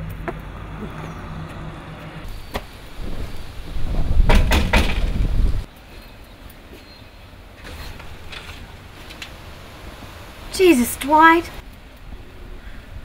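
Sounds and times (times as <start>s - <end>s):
knocks on metal screen door: 4.1s - 5.3s.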